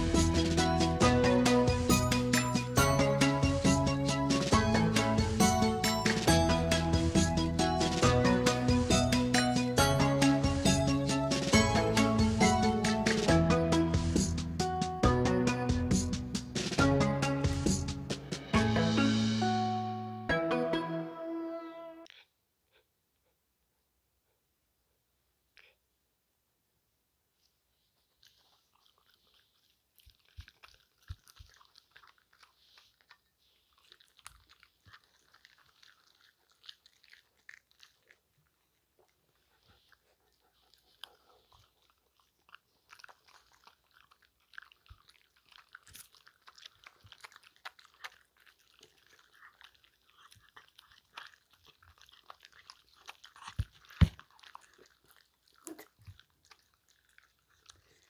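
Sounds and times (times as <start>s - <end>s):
dogs crunching treats: 0.0s - 13.3s, 27.9s - 58.0s.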